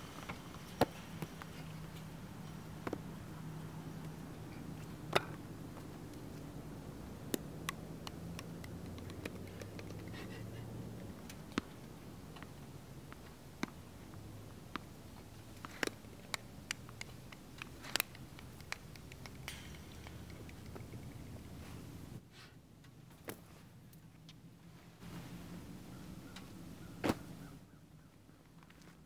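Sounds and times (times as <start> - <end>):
sharp taps and clicks: 7.3 - 10.1, 15.6 - 21.5.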